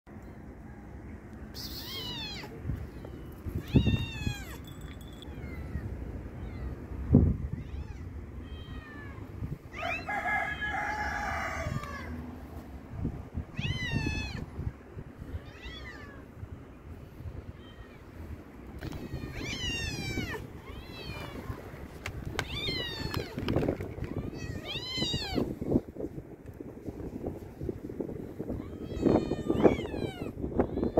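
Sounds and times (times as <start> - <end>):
cats meowing: 1.6 - 10.1, 13.5 - 14.5, 15.2 - 16.4, 18.8 - 25.5, 28.5 - 30.9.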